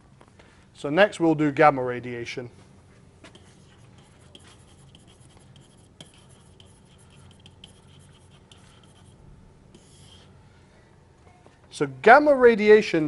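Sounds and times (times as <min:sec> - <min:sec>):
stylus scratching on tablet: 0:03.3 - 0:10.4.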